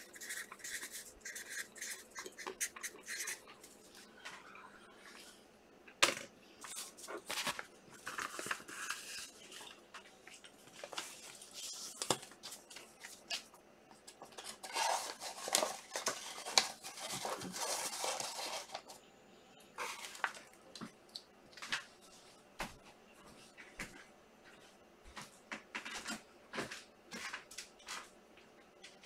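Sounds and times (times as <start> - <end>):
wrappers crinkling and tearing: 14.2 - 18.9.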